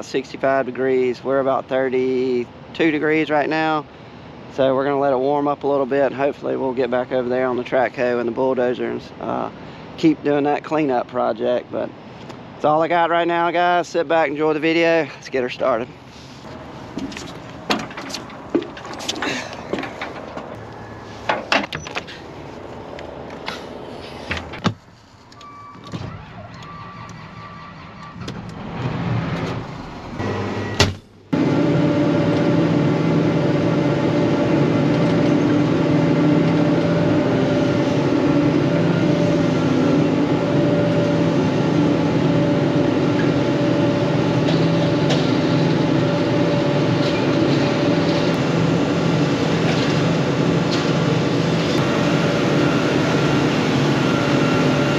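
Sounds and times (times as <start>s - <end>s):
diesel engine running: 11.5s - 54.9s
door sounds: 16.5s - 22.3s, 23.2s - 31.2s
scattered clicks and knocks: 17.0s - 20.6s.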